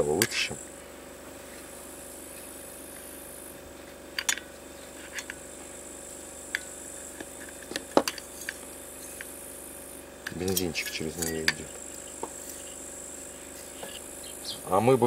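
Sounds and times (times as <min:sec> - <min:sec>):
crickets chirring: 0:00.0 - 0:15.0.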